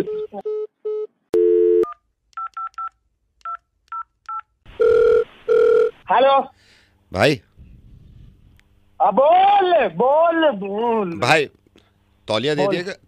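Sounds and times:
phone ringing tone: 1.4 - 1.9, 4.8 - 6.0.

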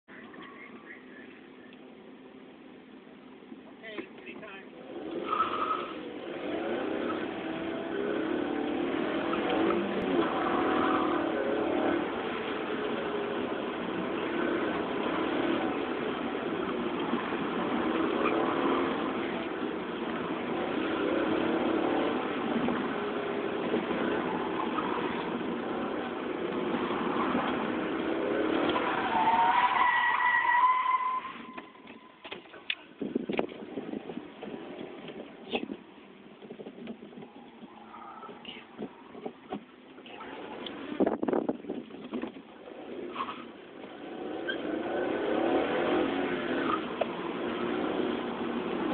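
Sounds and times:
car engine revving: 4.7 - 32.1, 36.7 - 48.9.

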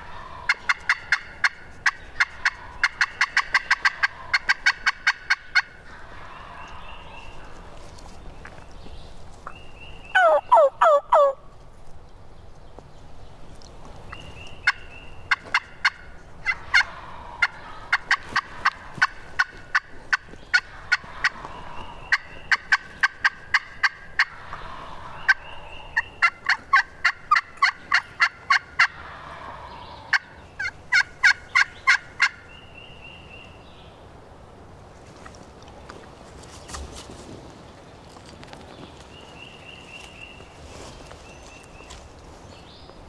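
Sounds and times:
wild turkeys calling: 0.0 - 7.7, 9.4 - 11.5, 14.1 - 33.6.

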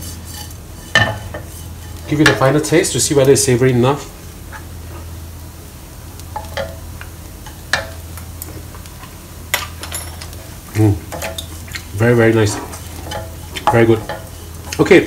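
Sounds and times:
chilli paste sizzling in pan: 0.0 - 15.0.

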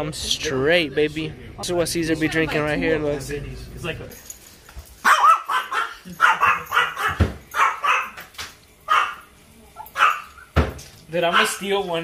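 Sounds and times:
small dog yapping: 5.0 - 8.3, 8.9 - 10.5.

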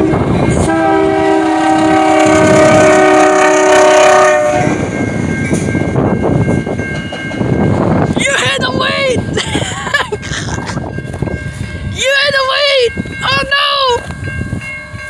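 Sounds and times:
locomotive horn: 0.0 - 4.9
locomotive engine and wheels: 0.0 - 15.0.

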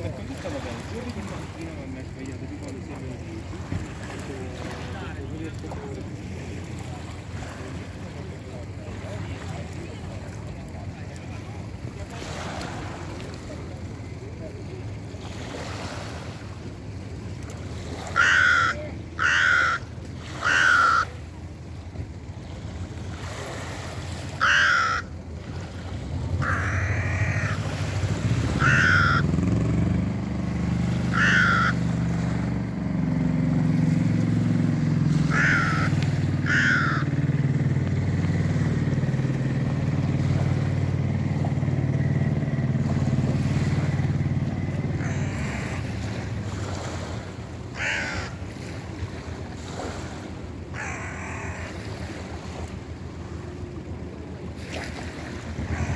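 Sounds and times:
low engine drone: 0.0 - 55.9
crow cawing: 18.1 - 21.2, 24.4 - 25.2, 26.4 - 29.4, 31.0 - 32.0, 35.1 - 37.2, 45.0 - 46.0, 47.7 - 48.6, 50.7 - 52.0.

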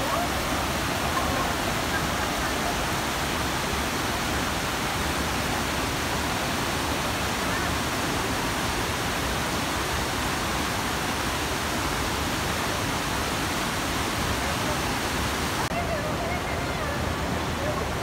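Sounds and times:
rapids rushing over rocks: 0.0 - 18.0.

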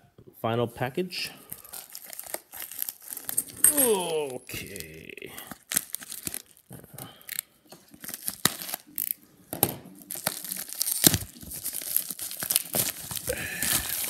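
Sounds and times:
plastic mailer tearing and crinkling: 1.5 - 9.2, 9.9 - 14.0.

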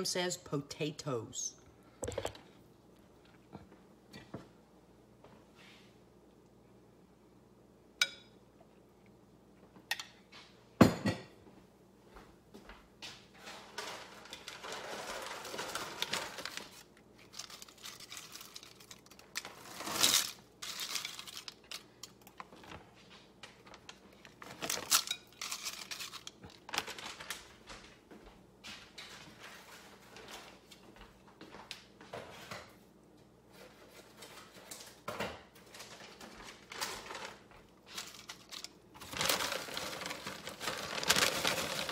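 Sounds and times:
dry potato slices rustling: 14.2 - 22.3, 24.4 - 27.3, 37.9 - 41.9.

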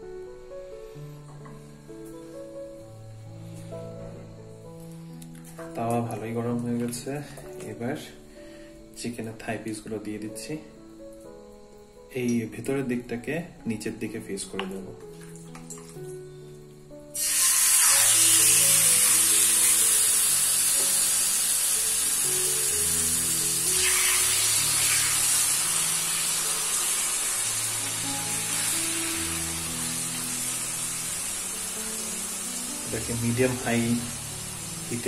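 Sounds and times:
background music of held notes: 0.0 - 35.0
chicken sizzling in hot oil: 17.1 - 35.0.

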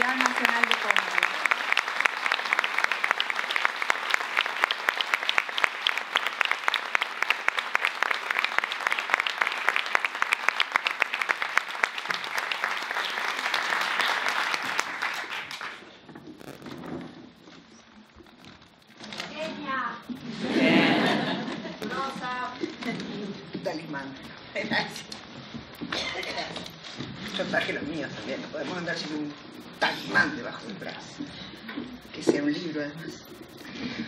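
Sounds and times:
audience applauding: 0.0 - 16.0.

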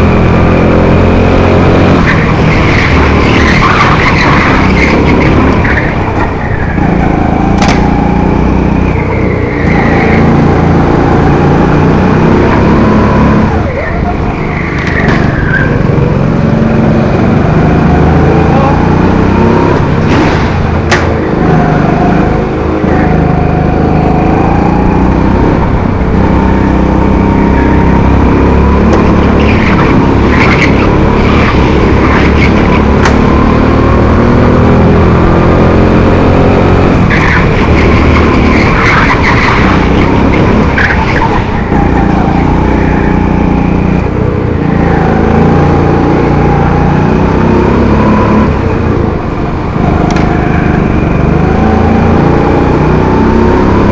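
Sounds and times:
kart engine running hard: 0.0 - 53.9
tyres squealing: 29.0 - 32.9, 36.4 - 44.0.

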